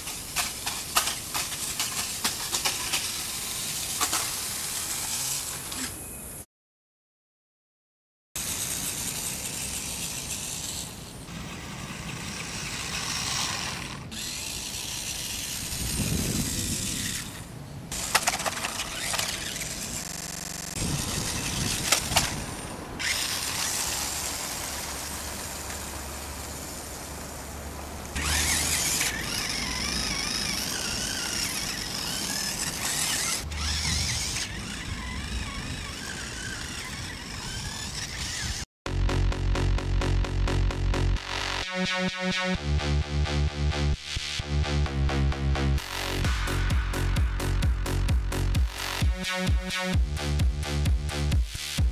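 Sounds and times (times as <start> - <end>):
toy car motors whining: 0.0 - 6.2, 8.4 - 27.4, 28.1 - 38.7.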